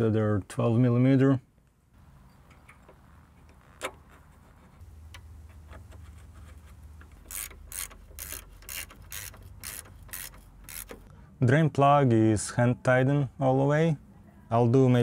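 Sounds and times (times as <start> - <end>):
hand ratchet clicking: 7.0 - 11.1.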